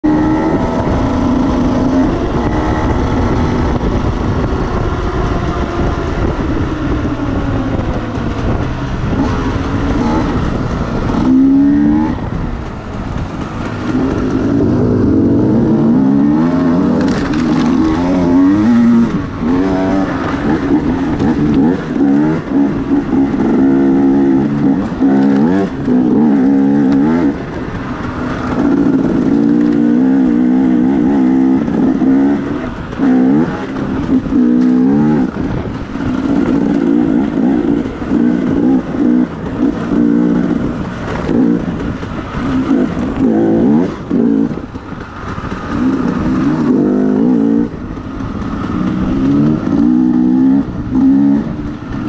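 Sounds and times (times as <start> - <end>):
motorcycle engine accelerating: 0.0 - 52.0.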